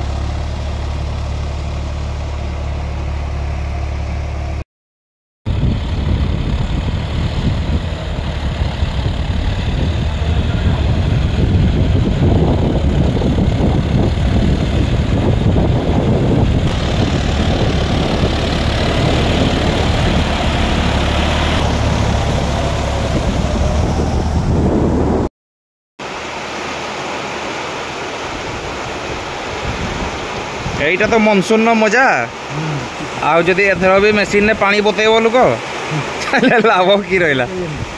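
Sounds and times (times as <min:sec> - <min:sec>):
water splashing around wheels: 0:00.0 - 0:03.4, 0:05.5 - 0:25.2, 0:26.0 - 0:37.9
tractor diesel engine running: 0:00.0 - 0:04.6, 0:05.5 - 0:25.2
steady rain falling: 0:32.0 - 0:33.5.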